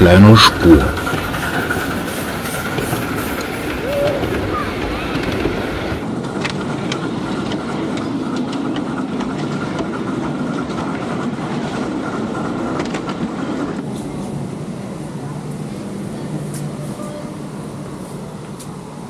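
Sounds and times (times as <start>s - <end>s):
wheels clicking over rail joints: 0.0s - 14.2s
miniature train rumbling on track: 0.0s - 19.0s.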